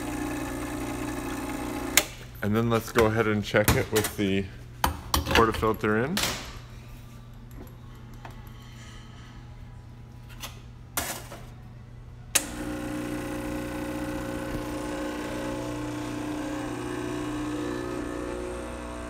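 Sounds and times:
espresso machine pump running: 0:00.0 - 0:02.1, 0:12.4 - 0:19.0.

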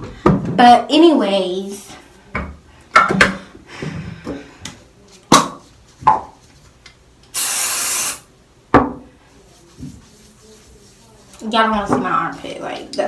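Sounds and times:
spray bottle hiss: 0:07.3 - 0:08.3.

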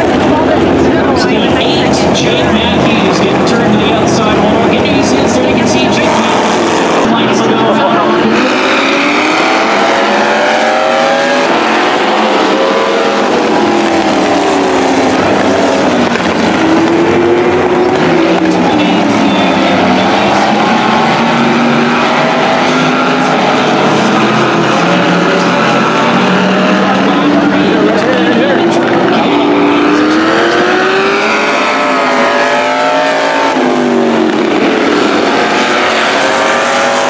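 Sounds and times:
car engines revving: 0:00.0 - 0:37.0.

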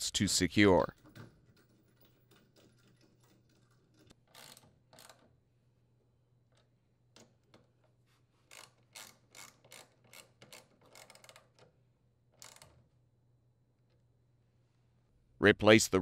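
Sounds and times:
ratchet wrench clicking: 0:04.3 - 0:05.2, 0:08.5 - 0:11.6, 0:12.4 - 0:12.7.

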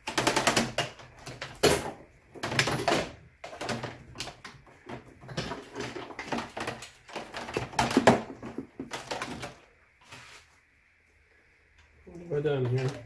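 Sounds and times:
clicking and rattling of plastic parts: 0:00.0 - 0:09.8, 0:12.5 - 0:13.0.

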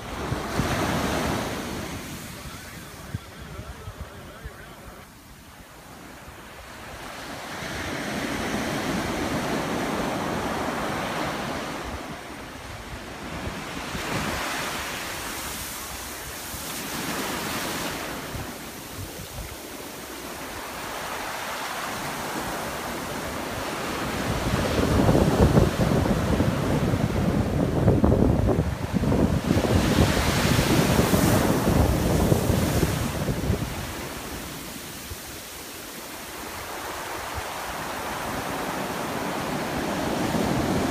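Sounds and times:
ocean surf breaking on beach: 0:00.0 - 0:40.9
wind buffeting microphone: 0:05.6 - 0:20.1, 0:23.6 - 0:35.5.

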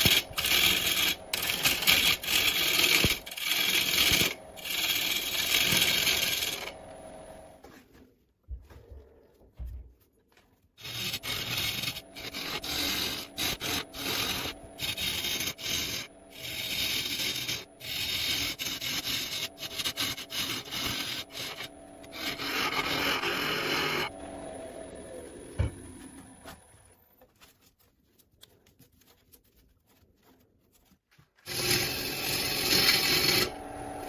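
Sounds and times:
lathe tool scraping wood: 0:00.0 - 0:07.6, 0:10.8 - 0:26.8, 0:31.4 - 0:34.0.

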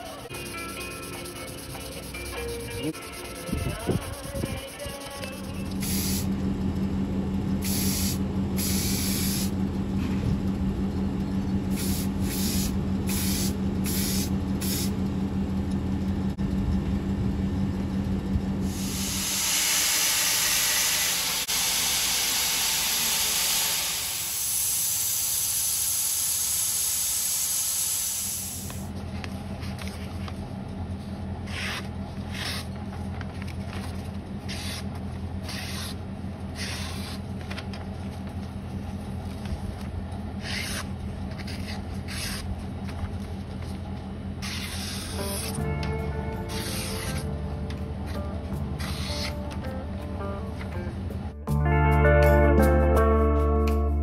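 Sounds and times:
belt grinder hissing on knife blade: 0:05.8 - 0:06.2, 0:07.6 - 0:09.5, 0:11.7 - 0:14.9, 0:18.7 - 0:28.8, 0:36.6 - 0:37.2, 0:40.4 - 0:40.9, 0:41.5 - 0:42.4, 0:44.4 - 0:45.6, 0:46.5 - 0:47.2, 0:48.8 - 0:49.4
electric motor humming: 0:18.6 - 0:28.8
knife slicing through paper: 0:34.5 - 0:36.0, 0:36.6 - 0:37.2, 0:44.4 - 0:45.6.

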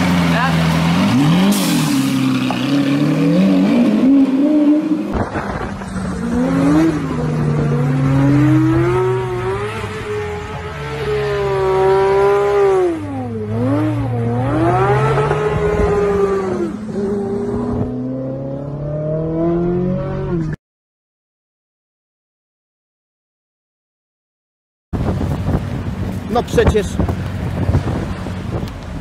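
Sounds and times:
car engine revving hard: 0:00.0 - 0:20.5.

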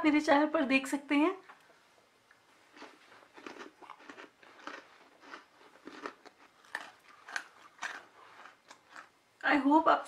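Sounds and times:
crunchy pastry being chewed: 0:02.3 - 0:09.2.

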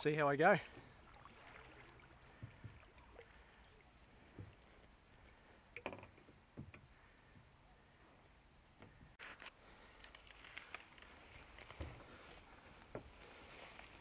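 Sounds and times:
faint high hiss: 0:00.0 - 0:14.0
paddle splashes and knocks: 0:00.7 - 0:03.4.

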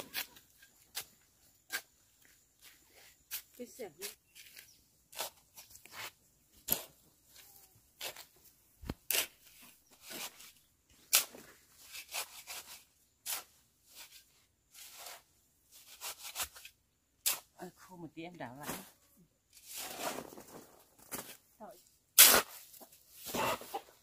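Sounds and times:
tool scraping wet mortar: 0:03.2 - 0:08.3, 0:09.0 - 0:17.5.

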